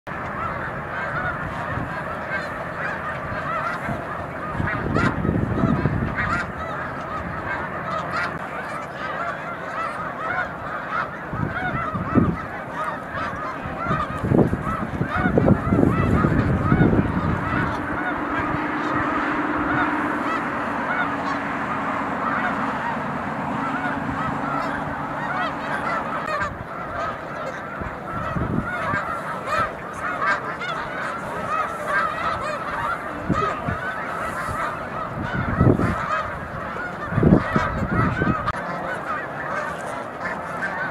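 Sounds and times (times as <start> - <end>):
low rushes of noise: 0.1 - 40.9
snow geese honking: 0.1 - 40.9.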